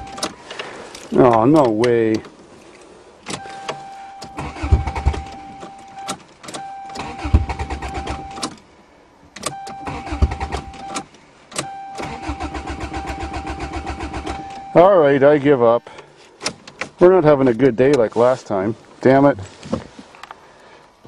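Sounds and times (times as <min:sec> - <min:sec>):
starter cranking engine: 0:04.4 - 0:05.2, 0:12.0 - 0:14.4.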